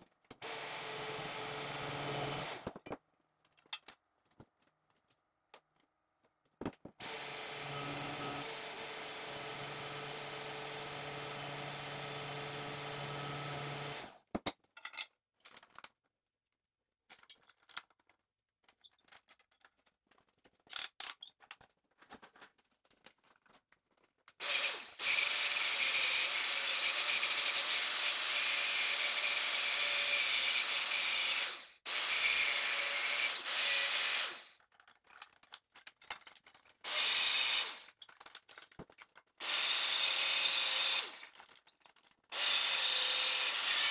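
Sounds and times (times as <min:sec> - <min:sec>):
angle grinder cutting steel: 0:07.0 - 0:14.1, 0:24.4 - 0:34.5, 0:39.4 - 0:41.3, 0:42.4 - 0:43.9.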